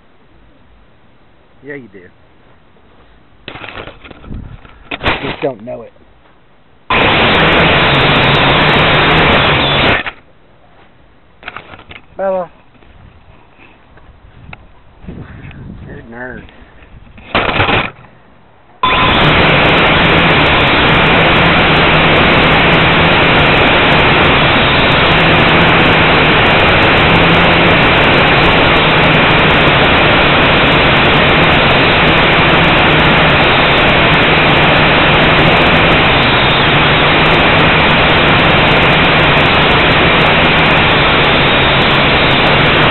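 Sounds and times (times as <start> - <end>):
quadcopter motors and propellers: 6.9 - 10.2, 18.8 - 42.9.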